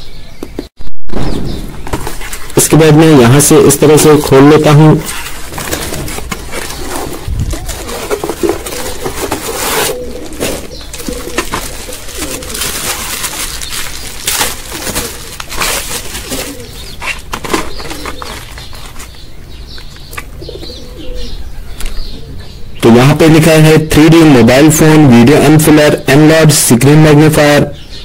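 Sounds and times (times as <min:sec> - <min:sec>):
birds calling: 0:00.0 - 0:28.0
cardboard and bubble wrap crackling: 0:01.8 - 0:02.9, 0:03.6 - 0:19.3.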